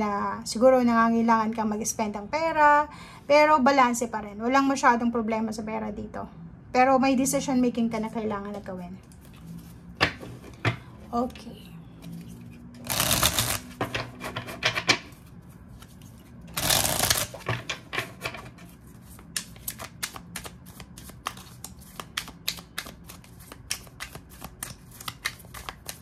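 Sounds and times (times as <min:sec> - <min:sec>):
cards riffle shuffling: 0:12.1 - 0:14.5, 0:15.1 - 0:17.6, 0:18.4 - 0:26.0
cards clicking hand to hand: 0:12.8 - 0:14.0, 0:16.6 - 0:17.6, 0:19.2 - 0:26.0.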